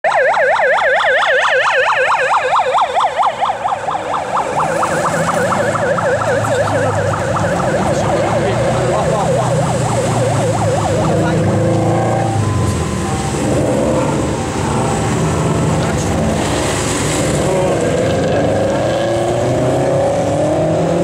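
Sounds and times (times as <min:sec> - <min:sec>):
fast yelping siren: 0:00.0 - 0:16.5
rally car engines: 0:03.8 - 0:21.0.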